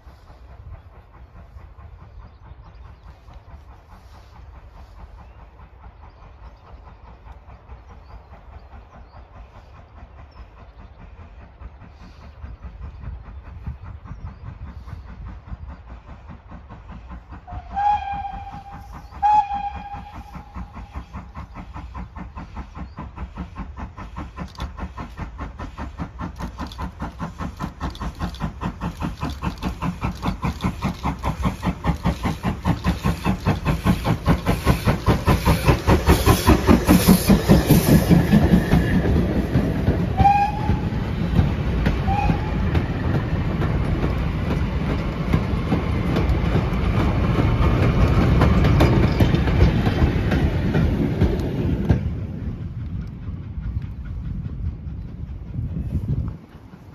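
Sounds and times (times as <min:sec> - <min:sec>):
steam locomotive exhaust beats: 0:00.0 - 0:56.9
steam locomotive whistle toots: 0:17.4 - 0:21.3, 0:39.9 - 0:41.3, 0:42.0 - 0:43.2
wagons clattering over rail joints: 0:24.3 - 0:56.9.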